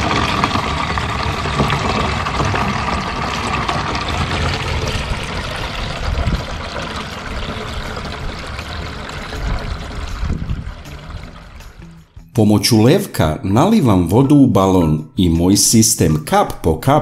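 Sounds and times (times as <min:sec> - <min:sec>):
water splashing and trickling: 0:00.0 - 0:12.3
water pouring through funnel: 0:00.0 - 0:12.4.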